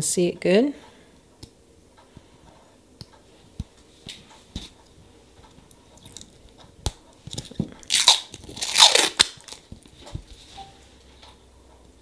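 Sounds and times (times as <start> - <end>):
plastic film peeling and crinkling: 7.3 - 10.0.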